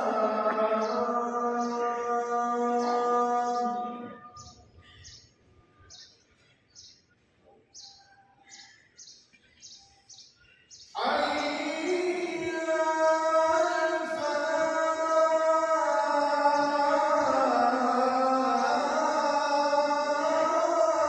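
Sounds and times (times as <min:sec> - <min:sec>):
man chanting call to prayer: 0:00.0 - 0:04.6, 0:11.0 - 0:21.0.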